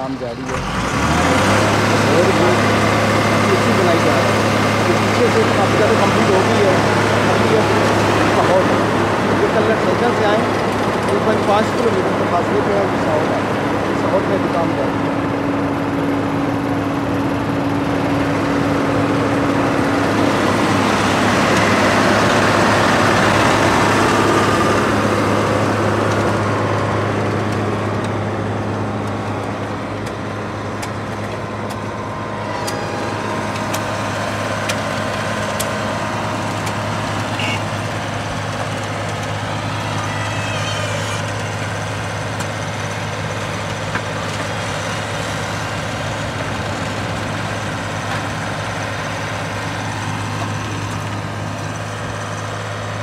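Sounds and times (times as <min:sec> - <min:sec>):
diesel machinery engines humming: 0:00.0 - 0:53.0.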